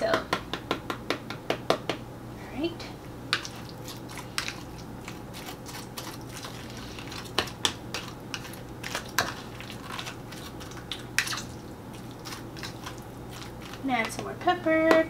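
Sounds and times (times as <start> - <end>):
fork mashing food: 3.3 - 14.3.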